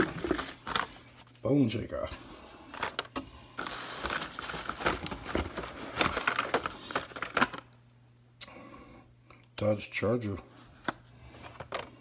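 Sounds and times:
plastic packs rustling and clicking: 0.0 - 1.3, 2.7 - 7.8, 10.8 - 12.0.

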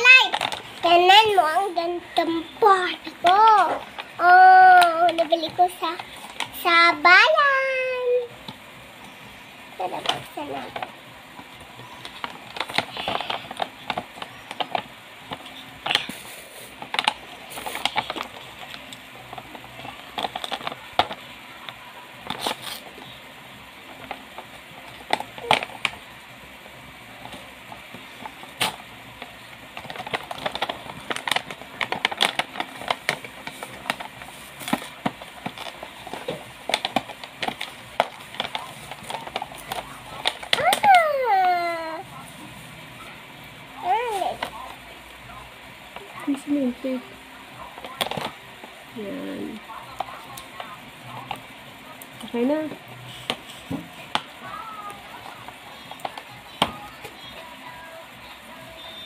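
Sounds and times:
packaging clicks and crackles: 9.8 - 23.2, 23.8 - 26.0, 27.2 - 42.0, 47.6 - 48.8, 49.5 - 57.6.

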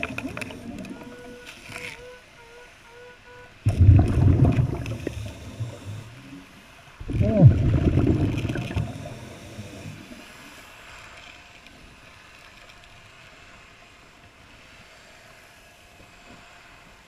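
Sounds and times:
underwater hiss: 0.0 - 1.8, 2.5 - 11.2
diver's bubbles gurgling: 3.7 - 6.3, 7.0 - 10.1.

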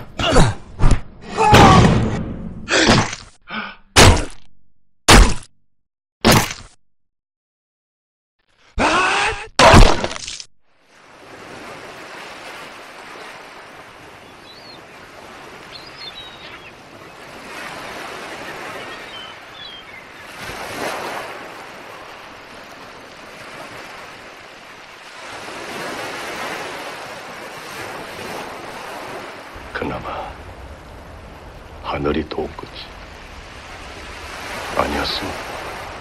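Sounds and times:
wind: 0.0 - 4.4, 8.4 - 36.0
surf washing onto beach: 10.9 - 36.0
faint high bird calls: 14.2 - 15.0, 15.6 - 17.3, 18.2 - 20.4.

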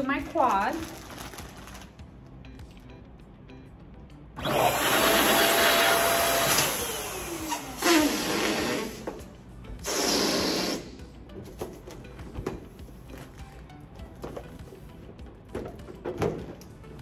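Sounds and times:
electric balloon inflator whine: 4.4 - 11.1.

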